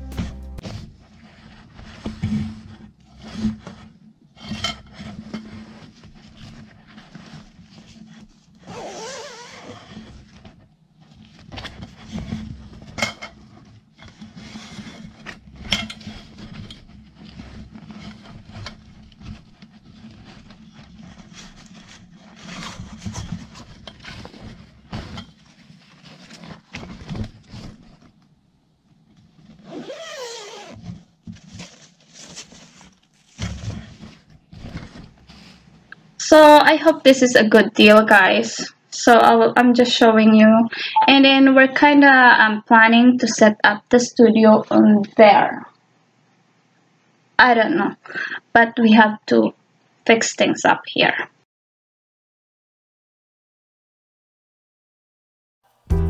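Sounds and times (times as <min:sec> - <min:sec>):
fabric rustling: 0:00.0 - 0:36.2
bag zipper opening: 0:08.6 - 0:10.3, 0:29.5 - 0:31.0.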